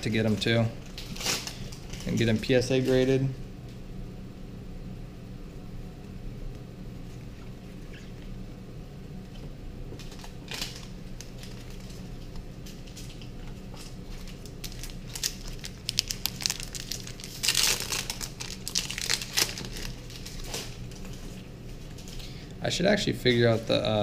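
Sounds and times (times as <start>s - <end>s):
foil wrapper crinkling and tearing: 0.8s - 3.0s, 10.0s - 21.2s.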